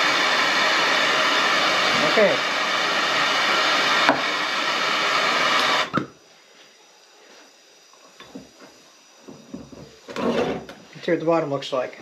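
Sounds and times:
gas torch hissing: 0:00.0 - 0:06.0.

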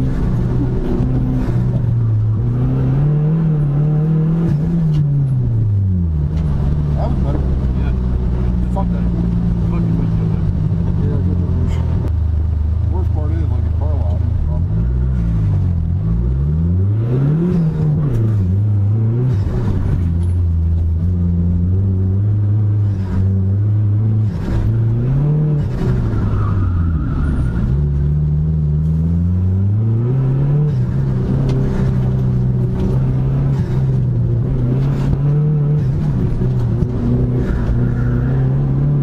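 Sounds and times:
car engine revving: 0:00.0 - 0:39.0.

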